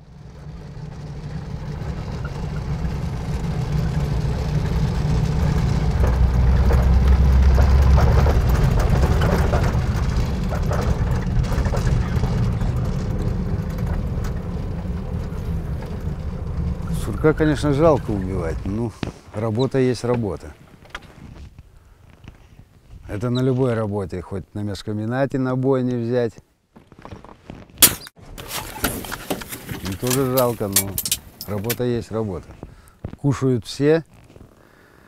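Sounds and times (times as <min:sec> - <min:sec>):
vehicle engine drone from cabin: 0:00.0 - 0:19.1
vehicle body rattles: 0:00.1 - 0:21.4, 0:27.8 - 0:32.9.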